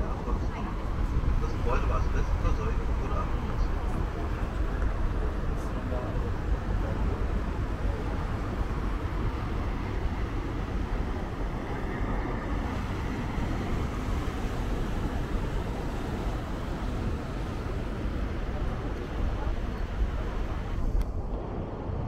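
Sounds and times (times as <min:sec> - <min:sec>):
boat engine rumble: 0:00.0 - 0:22.0
water rushing past: 0:00.0 - 0:22.0.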